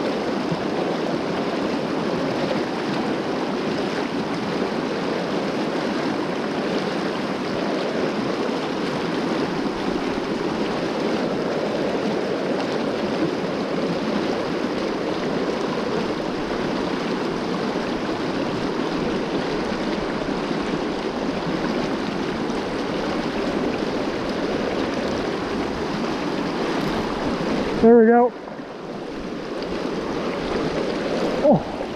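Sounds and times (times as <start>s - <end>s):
water rushing over rocks: 0.0s - 31.9s.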